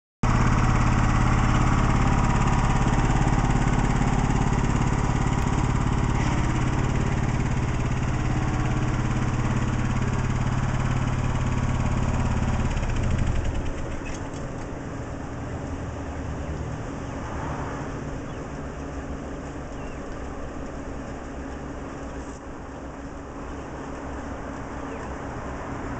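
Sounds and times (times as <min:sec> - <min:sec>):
lawn tractor engine running: 0:00.2 - 0:16.2.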